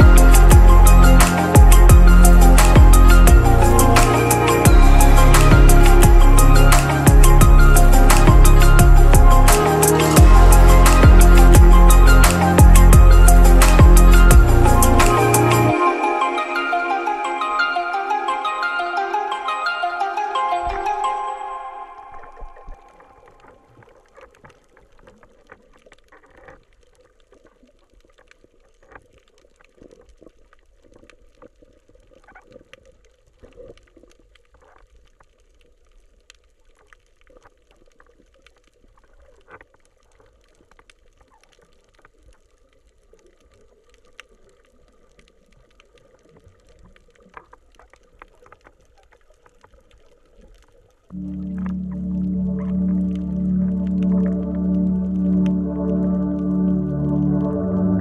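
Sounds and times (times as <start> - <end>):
small underwater clicks and crackles: 22.1 - 54.4.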